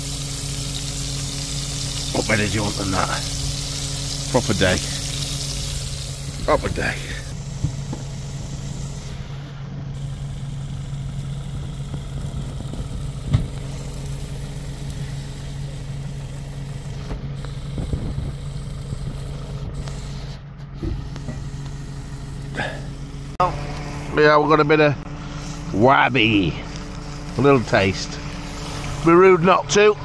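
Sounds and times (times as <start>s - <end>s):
engine idling: 0.0s - 30.0s.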